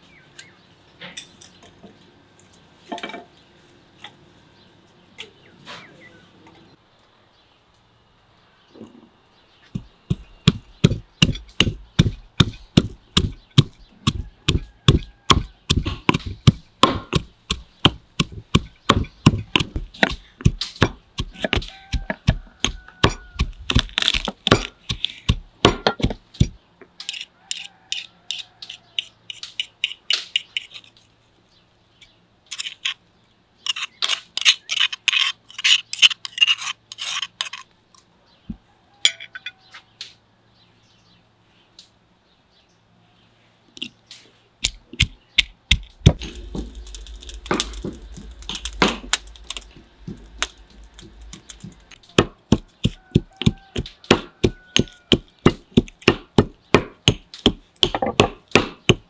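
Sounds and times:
stone pestle pounding in mortar: 9.7s - 26.6s, 44.6s - 59.0s.

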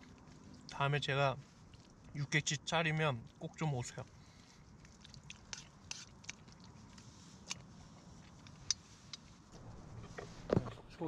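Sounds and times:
person chewing: 1.6s - 2.2s, 4.2s - 8.8s.

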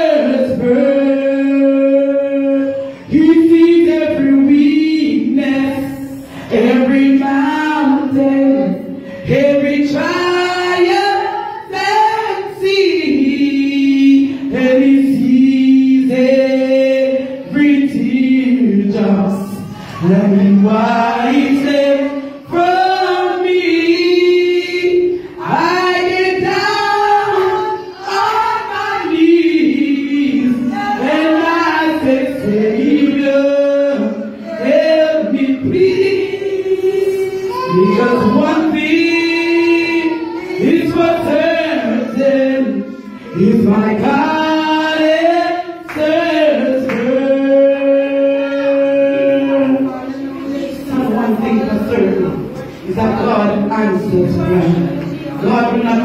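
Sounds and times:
voices singing gospel song: 0.0s - 56.0s.

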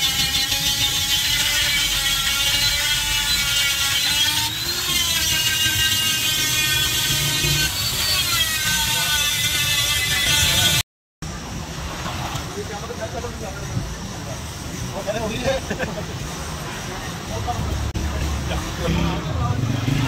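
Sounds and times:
die grinder whining: 0.0s - 10.8s.

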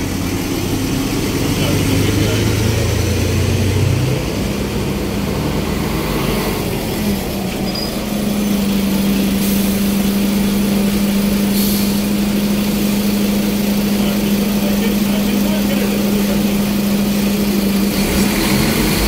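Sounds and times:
bus engine humming: 0.0s - 19.0s
bus air brake hiss: 9.3s - 10.0s, 11.5s - 12.2s.

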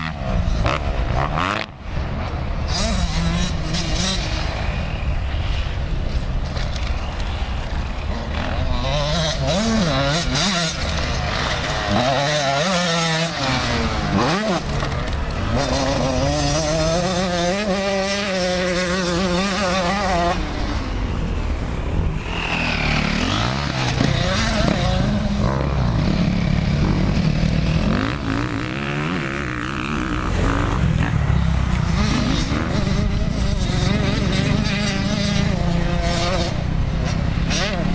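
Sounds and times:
dirt bike engines revving: 0.0s - 37.9s.

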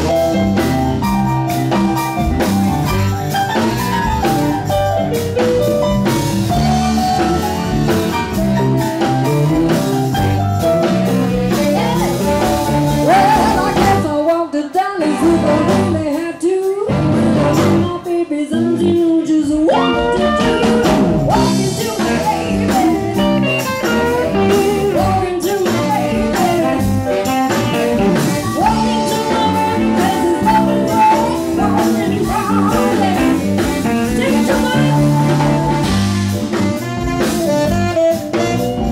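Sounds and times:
live blues band playing: 0.0s - 38.9s
woman singing: 10.9s - 36.1s.

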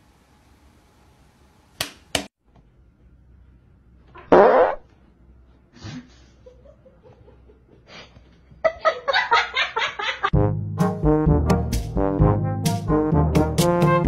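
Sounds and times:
person farting: 4.2s - 4.9s.

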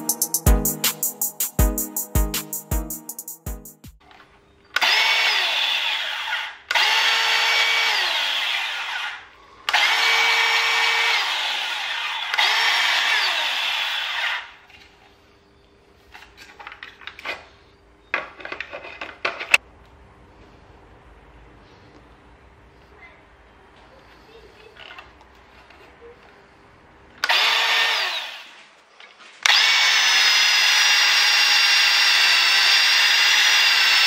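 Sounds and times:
band saw running: 4.8s - 14.5s, 27.2s - 28.5s, 29.5s - 34.0s.

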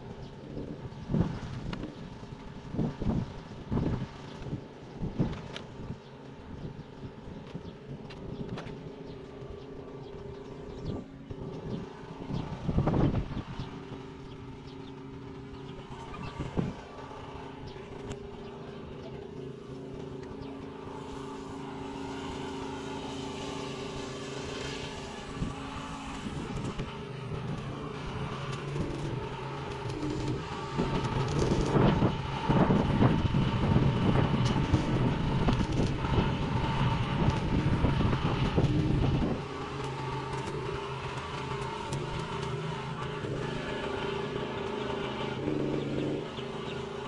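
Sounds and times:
steady low hum: 0.0s - 47.0s
welding arc crackling and sizzling: 10.0s - 47.0s.

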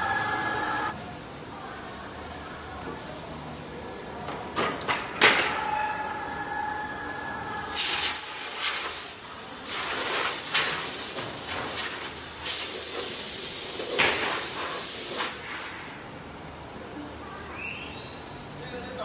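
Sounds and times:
loud steady hiss: 7.6s - 16.4s.

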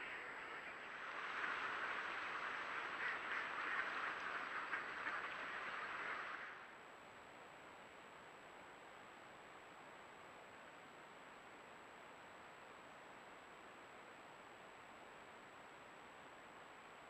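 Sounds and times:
flock of ducks quacking: 0.0s - 6.6s
faint steady hiss: 0.0s - 17.0s.

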